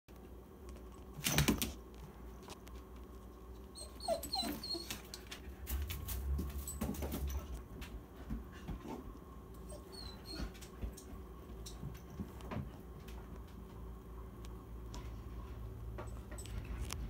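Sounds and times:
dog whining and whimpering: 3.6 - 5.3, 9.6 - 10.7.

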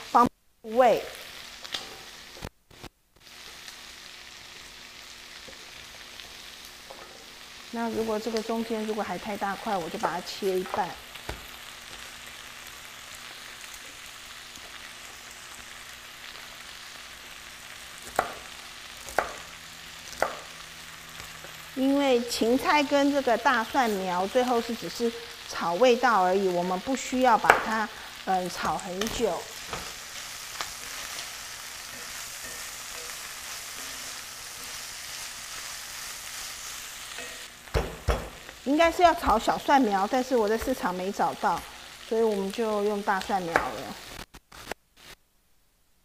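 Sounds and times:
food sizzling in a wok: 0.0 - 45.2
knife chopping on cutting board: 18.0 - 18.4, 19.1 - 19.4, 20.2 - 20.4.

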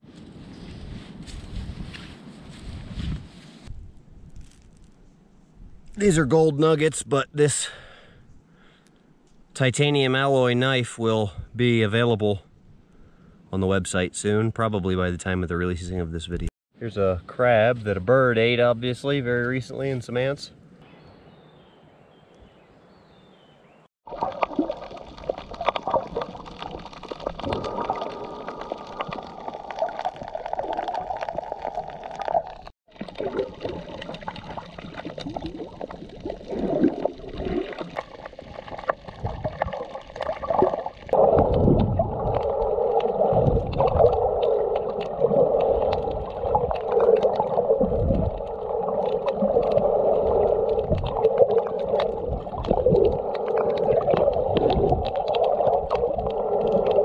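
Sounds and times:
small underwater clicks: 24.1 - 57.0
underwater gurgling and bubbling: 24.1 - 57.0.

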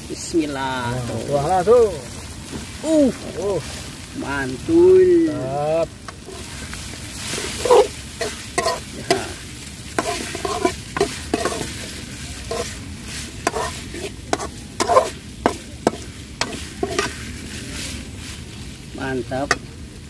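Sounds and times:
food sizzling: 0.0 - 20.0
metal spoon scraping wok: 6.1 - 18.4.

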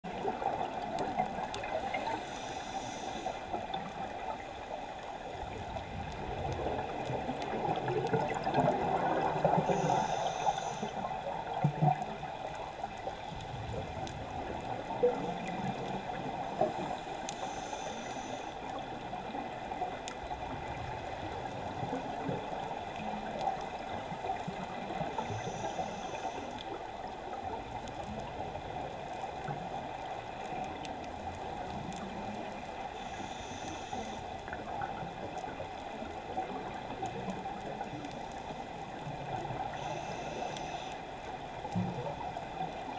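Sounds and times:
muffled water noise: 0.0 - 42.9
scuba regulator hiss: 1.8 - 3.4, 9.6 - 11.1, 17.4 - 18.5, 25.2 - 26.5, 33.0 - 34.2, 39.8 - 40.9
gurgling exhaled bubbles: 5.4 - 10.2.

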